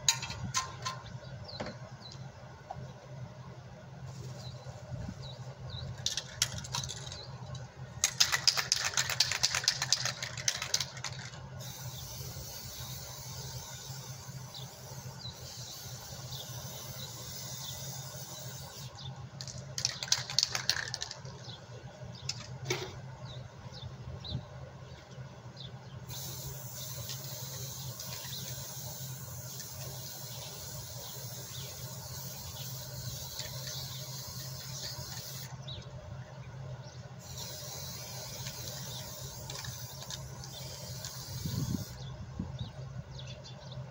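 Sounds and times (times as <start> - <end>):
steady hiss: 11.6 - 19.0, 26.1 - 35.5, 37.2 - 42.1.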